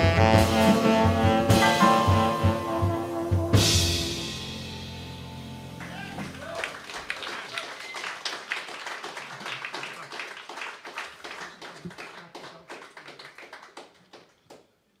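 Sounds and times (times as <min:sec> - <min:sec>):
audience clapping: 0:05.8 - 0:14.8.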